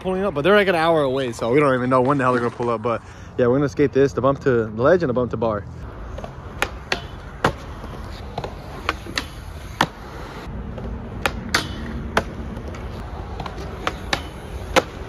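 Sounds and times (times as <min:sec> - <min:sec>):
skateboard wheels rolling on concrete: 0:00.0 - 0:15.0
skateboard clacking on metal bar: 0:11.2 - 0:12.8.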